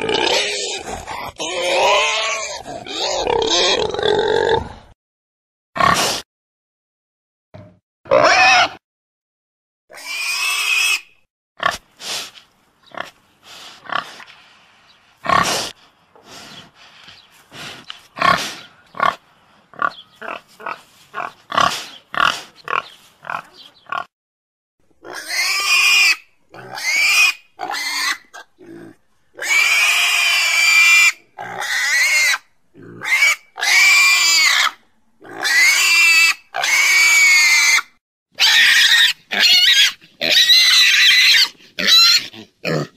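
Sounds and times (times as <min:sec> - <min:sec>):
pig squealing: 0:00.0 - 0:04.6, 0:08.1 - 0:08.8, 0:09.9 - 0:11.8, 0:25.0 - 0:42.9
pig grunting: 0:00.0 - 0:05.0, 0:17.5 - 0:24.1, 0:32.7 - 0:33.8, 0:41.4 - 0:42.9.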